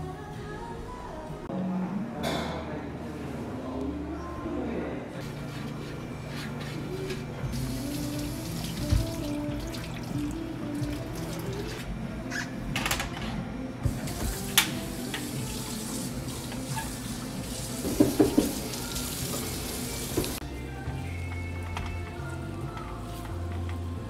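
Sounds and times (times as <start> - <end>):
soft background music: 0.0 - 24.0
water running in sink: 7.5 - 11.9, 13.8 - 20.4.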